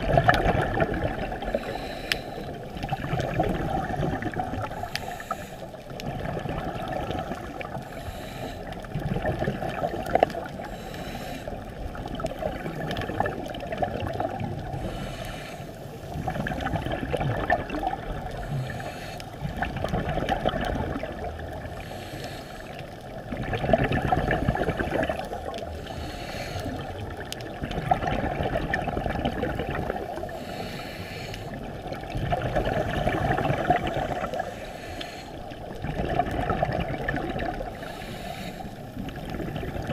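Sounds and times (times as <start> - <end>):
regulator bubbles gurgling underwater: 0.0 - 39.9
watery hiss: 4.6 - 5.9, 6.8 - 8.8, 10.5 - 11.6, 14.6 - 16.8, 18.2 - 19.5, 21.6 - 22.9, 24.3 - 27.0, 30.0 - 31.7, 32.6 - 35.7, 37.4 - 39.2.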